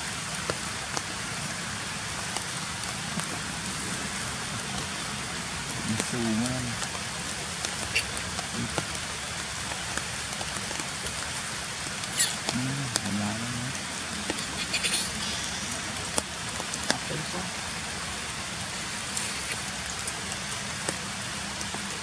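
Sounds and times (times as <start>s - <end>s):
rain hiss: 0.0s - 22.0s
person's low voice: 12.5s - 13.8s.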